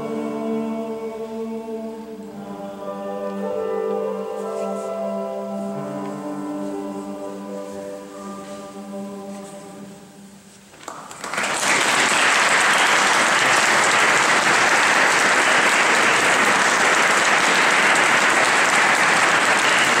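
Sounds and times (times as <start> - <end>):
men's choir singing a cappella: 0.0 - 10.2
audience clapping: 10.8 - 20.0.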